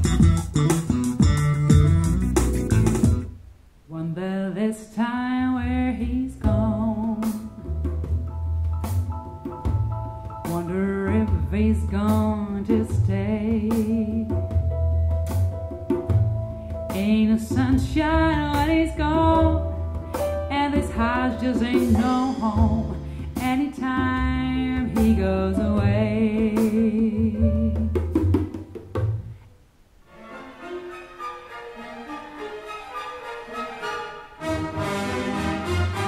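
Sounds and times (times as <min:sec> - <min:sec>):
vocal music with bass and drums: 0:00.0 - 0:03.3, 0:04.0 - 0:28.3.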